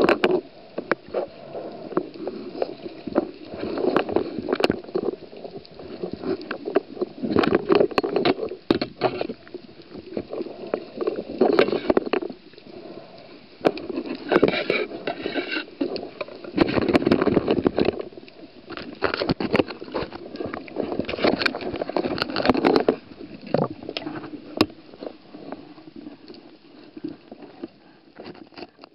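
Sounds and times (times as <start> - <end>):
muffled underwater water movement: 0.0 - 28.9.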